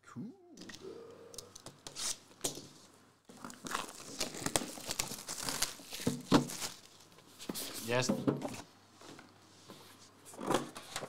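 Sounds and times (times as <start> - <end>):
plastic shrink wrap crinkling: 3.3 - 8.0.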